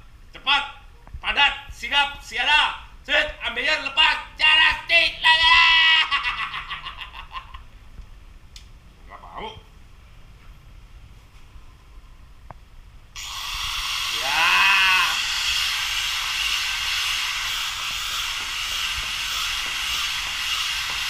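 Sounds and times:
man shouting: 0:04.4 - 0:06.1, 0:14.1 - 0:15.2
angle grinder whining: 0:13.2 - 0:21.0.

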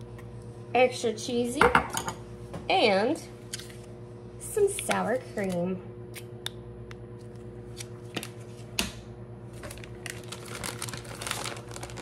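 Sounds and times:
plastic packaging crinkling: 0:09.5 - 0:12.0.

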